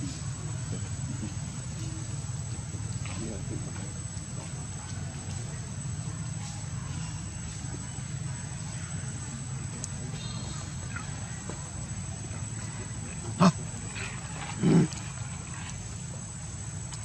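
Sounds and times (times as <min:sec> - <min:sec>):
low background hum: 0:00.0 - 0:17.0
monkey grunting calls: 0:13.0 - 0:15.3.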